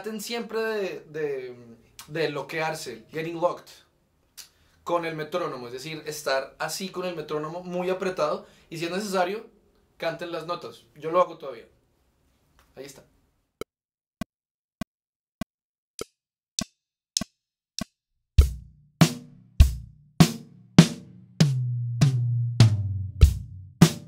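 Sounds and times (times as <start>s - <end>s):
acoustic drum kit groove: 18.4s - 24.0s.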